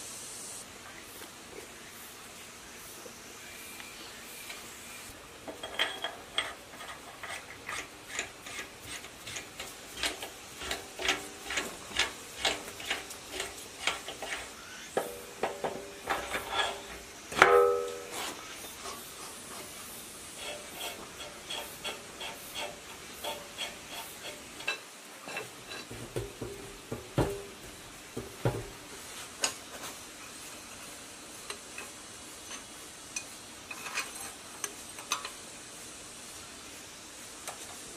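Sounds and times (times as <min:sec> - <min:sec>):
steel parts clinking: 0:05.5 - 0:18.4
loud metal clang: 0:17.3 - 0:18.3
dull knocks: 0:25.9 - 0:28.8.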